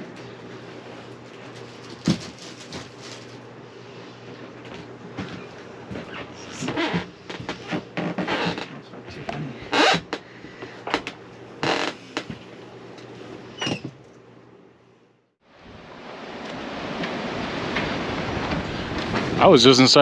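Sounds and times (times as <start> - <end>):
rustles and knocks: 1.0 - 3.5.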